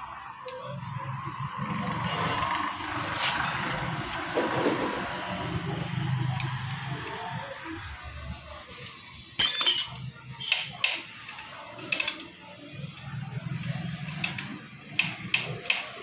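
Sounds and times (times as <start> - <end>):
metal tools clinking: 3.2 - 3.8, 6.4 - 6.9, 8.8 - 10.1.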